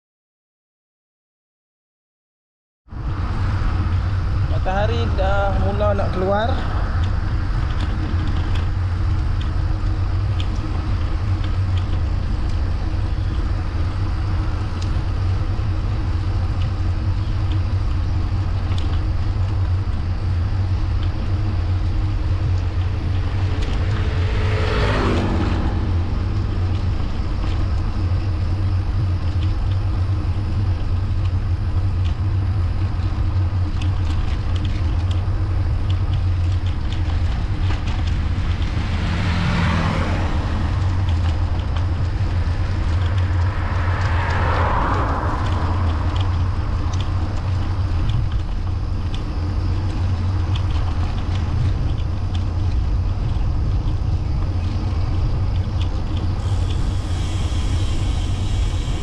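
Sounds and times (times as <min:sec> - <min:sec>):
wind rumble on microphone: 0:02.9 - 0:59.0
motor vehicle passing: 0:21.2 - 0:29.2, 0:37.0 - 0:50.0.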